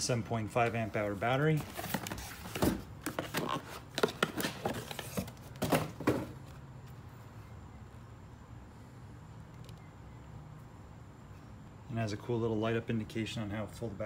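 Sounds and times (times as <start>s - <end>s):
cardboard rustling and scraping: 0.7s - 6.6s
faint low hum: 4.1s - 14.0s.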